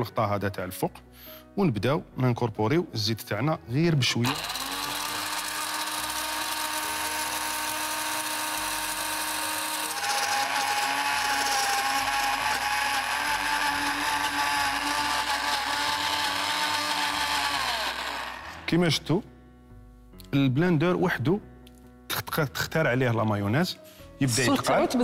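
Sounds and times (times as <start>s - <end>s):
blender whining: 4.2s - 18.8s.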